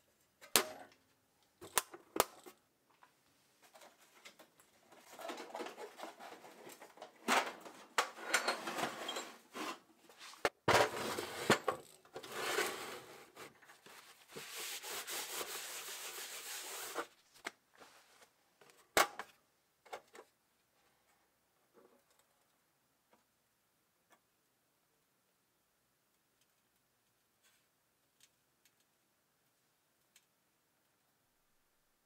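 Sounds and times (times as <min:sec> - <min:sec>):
metal tool box scraping and knocking: 0:05.0 - 0:09.9, 0:10.6 - 0:13.4.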